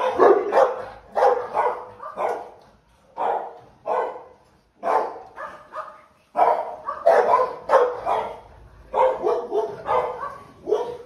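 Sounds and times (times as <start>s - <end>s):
dog barking deeply: 0.0s - 2.6s, 3.2s - 11.0s.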